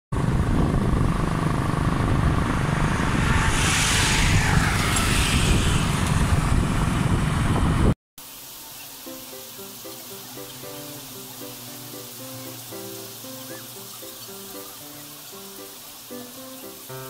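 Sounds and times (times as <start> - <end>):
road and wind noise: 0.1 - 8.0
hiss: 8.2 - 17.0.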